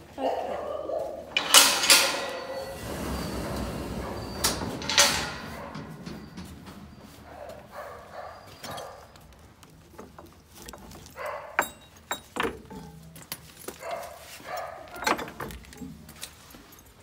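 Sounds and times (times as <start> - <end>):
dog barking: 0.1 - 1.3, 7.3 - 9.1, 11.2 - 11.6, 13.8 - 15.0
metal tack clinking: 1.4 - 7.7, 8.5 - 13.7.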